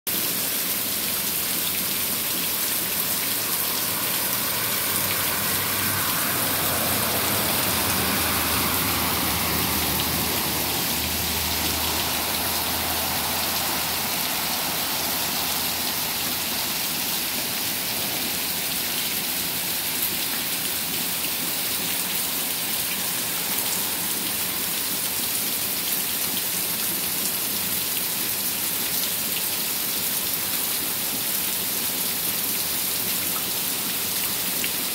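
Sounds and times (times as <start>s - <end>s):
heavy rain pouring: 0.1s - 34.9s
vehicle splashing through water: 0.7s - 34.9s.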